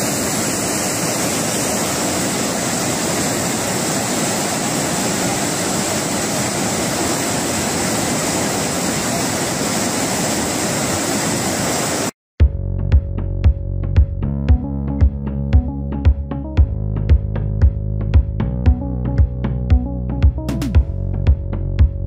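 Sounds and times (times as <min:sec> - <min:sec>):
muddy water rushing: 0:00.0 - 0:12.1
electronic music with regular beat: 0:12.4 - 0:22.0.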